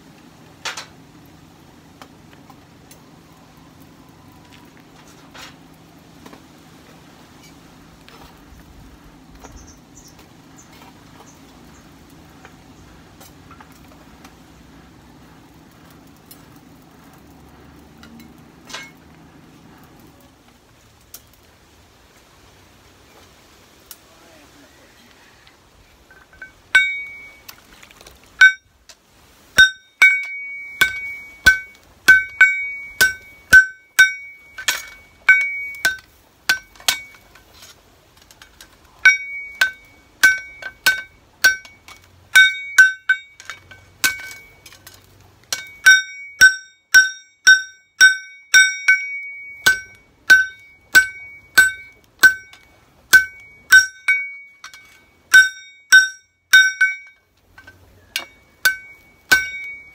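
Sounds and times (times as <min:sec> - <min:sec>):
hammer ringing on anvil: 0:26.4 - 0:27.4, 0:29.6 - 0:37.2, 0:39.0 - 0:44.6, 0:45.5 - 0:57.2, 0:58.1 - 0:59.9.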